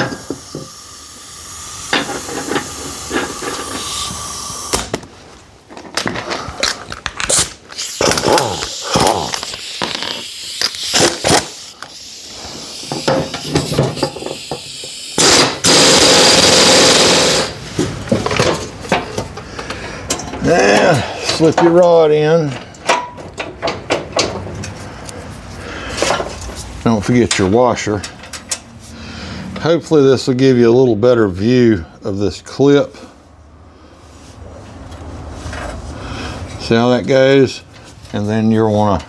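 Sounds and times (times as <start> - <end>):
pneumatic impact wrench running: 0.0 - 5.0, 7.3 - 17.7.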